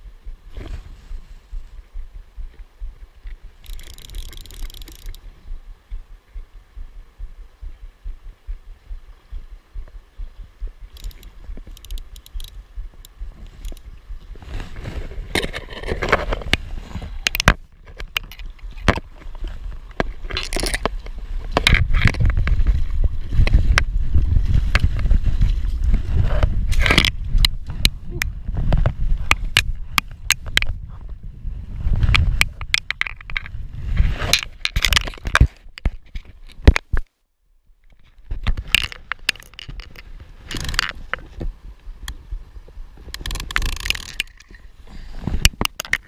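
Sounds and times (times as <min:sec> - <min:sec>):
low rumble of water: 0:00.0 - 0:32.4
forceps clicking on camera case: 0:38.4 - 0:41.2, 0:43.1 - 0:44.5
camera handling noise: 0:38.4 - 0:41.4, 0:43.1 - 0:44.5.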